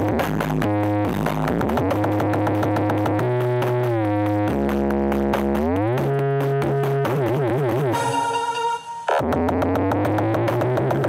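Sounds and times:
deep heavy bass: 0:00.0 - 0:07.9
synthesizer notes: 0:07.9 - 0:09.6.

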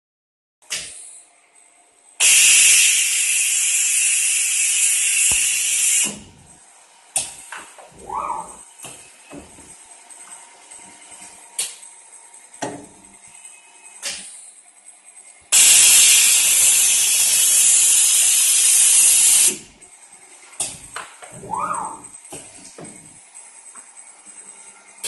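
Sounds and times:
compressed air hissing: 0:02.2 - 0:06.4, 0:15.5 - 0:19.7.

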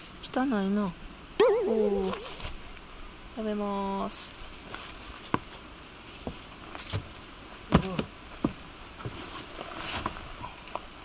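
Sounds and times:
footsteps on wooden deck: 0:06.2 - 0:09.4.

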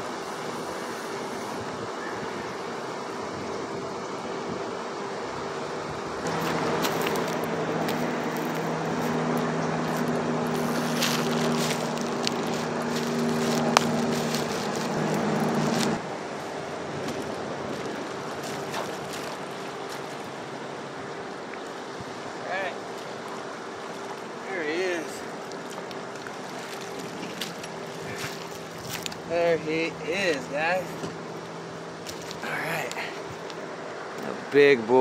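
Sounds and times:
wind noise: 0:00.0 - 0:20.4
steady low hum: 0:00.0 - 0:34.5
water splashing: 0:02.6 - 0:34.2.

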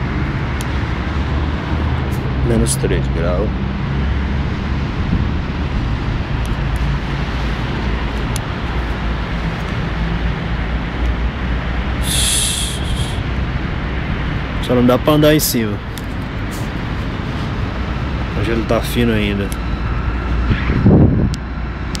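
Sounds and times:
low rumble and hiss: 0:05.0 - 0:21.3
brief high-pitched sound: 0:12.0 - 0:13.2.

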